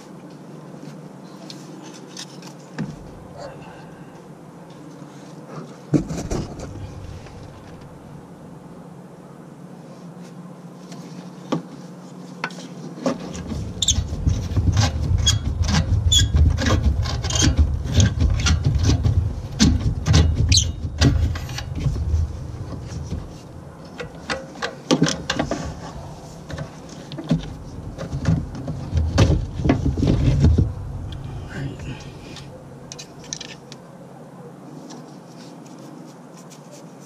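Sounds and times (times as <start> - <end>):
rubbing and knocking: 12.4 - 33.2.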